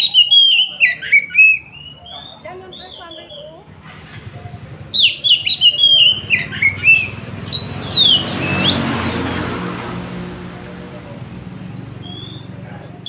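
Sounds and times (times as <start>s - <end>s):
bird singing whistled notes: 0.0s - 3.7s, 4.8s - 9.4s, 11.8s - 12.6s.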